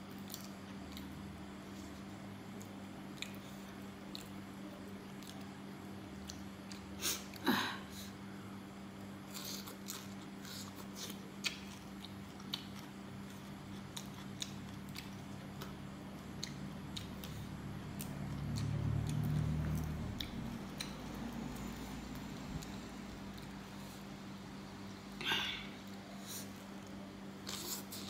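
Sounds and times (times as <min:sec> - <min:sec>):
person chewing food: 0:00.0 - 0:07.4, 0:09.3 - 0:24.2
steady low hum: 0:00.0 - 0:28.0.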